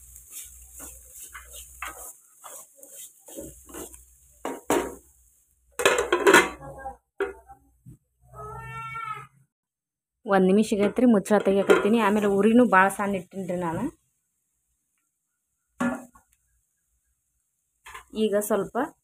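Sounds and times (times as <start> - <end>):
wooden spatula scraping a pan: 0.0 - 5.2, 10.9 - 13.8
metal lid clattering on pan: 5.8 - 6.6.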